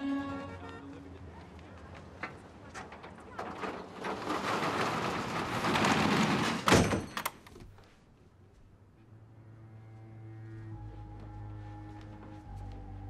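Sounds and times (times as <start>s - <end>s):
metal shutter rattling down: 2.6s - 7.4s.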